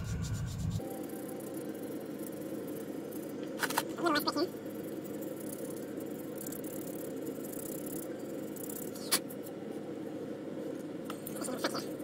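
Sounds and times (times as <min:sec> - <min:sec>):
steady background hum: 0:00.0 - 0:12.0.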